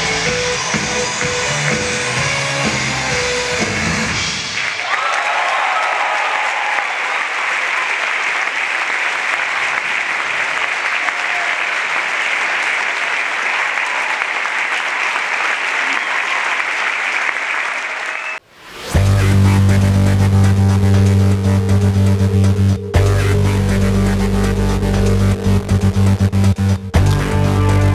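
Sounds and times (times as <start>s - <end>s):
audience cheering: 0.0s - 3.2s, 4.4s - 18.4s
audience applauding: 4.3s - 18.4s.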